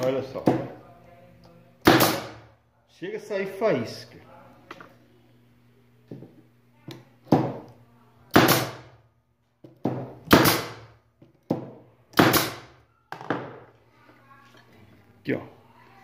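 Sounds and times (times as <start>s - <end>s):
nail gun firing into wood: 1.8s - 2.4s, 8.3s - 8.9s, 10.2s - 10.9s, 12.2s - 12.7s.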